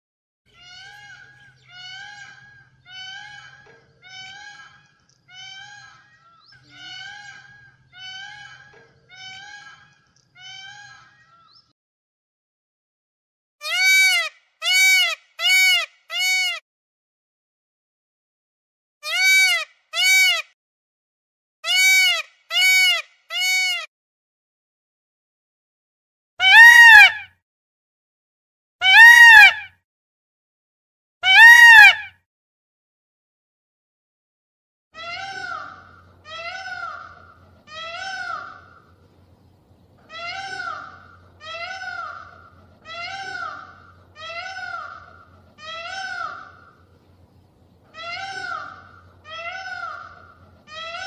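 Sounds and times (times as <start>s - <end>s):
peafowl calling: 0.6s - 11.6s, 13.6s - 16.6s, 19.0s - 20.4s, 21.7s - 23.9s, 26.4s - 27.2s, 28.8s - 29.7s, 31.2s - 32.1s, 35.0s - 39.0s, 40.0s - 46.9s, 47.8s - 51.0s.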